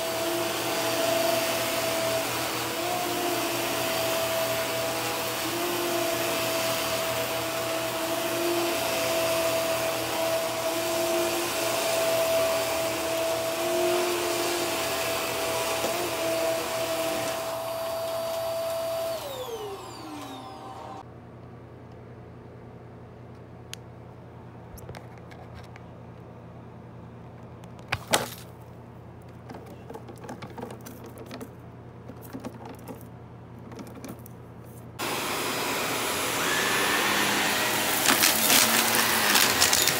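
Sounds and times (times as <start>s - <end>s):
vacuum cleaner motor whine: 0.0s - 21.0s, 35.0s - 39.9s.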